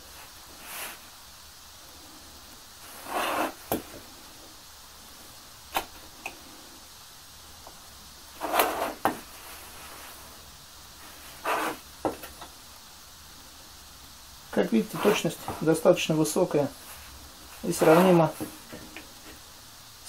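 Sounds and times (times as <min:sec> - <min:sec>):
wooden block scraping on workbench: 0:02.9 - 0:03.8, 0:08.4 - 0:09.2, 0:11.3 - 0:12.2, 0:14.8 - 0:15.7, 0:17.6 - 0:18.6.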